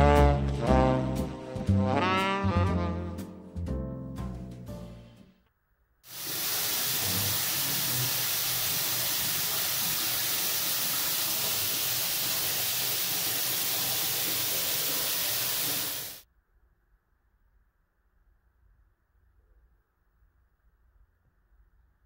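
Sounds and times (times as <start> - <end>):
running water spraying: 6.1 - 16.2.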